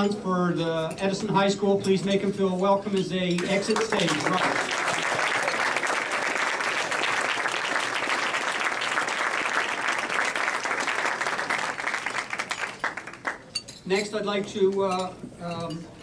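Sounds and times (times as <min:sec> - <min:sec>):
audience applauding: 0:03.4 - 0:13.5.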